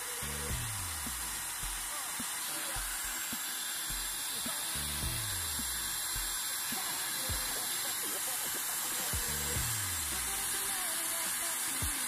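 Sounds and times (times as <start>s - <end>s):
background music with bass line: 0.0s - 2.0s, 2.8s - 6.4s, 9.1s - 10.8s
hair dryer blowing: 0.0s - 12.0s.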